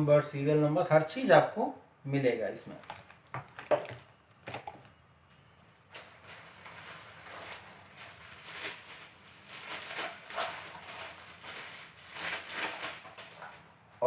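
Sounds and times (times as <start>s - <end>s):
plastic bag crinkling: 2.7s - 4.9s, 5.9s - 13.7s.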